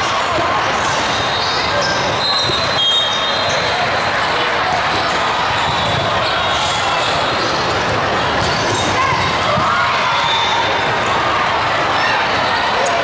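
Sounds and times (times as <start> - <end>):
chatter echoing in hall: 0.0 - 13.0
volleyballs struck and bouncing: 4.7 - 11.2.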